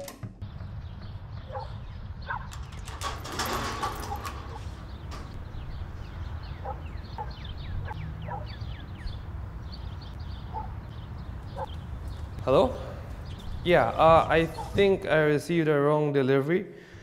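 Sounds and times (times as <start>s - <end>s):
animal calls: 14.4s - 14.9s.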